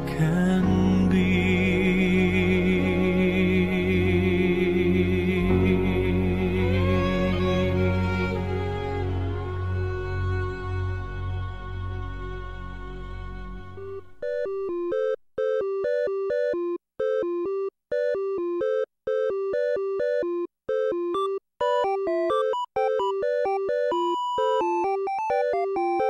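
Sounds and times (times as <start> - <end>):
slow song: 0.0 - 14.9
electronic synth melody: 13.2 - 26.0.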